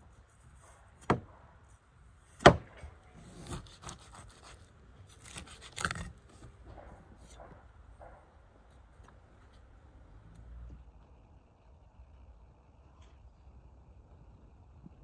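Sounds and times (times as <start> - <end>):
knife scraping cuts: 3.2 - 6.5.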